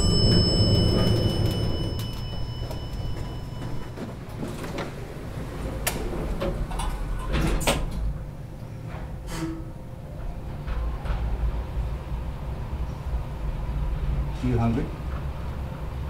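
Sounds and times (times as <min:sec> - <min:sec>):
elevator chime: 0:00.0 - 0:06.2
elevator low rumble: 0:00.0 - 0:16.0.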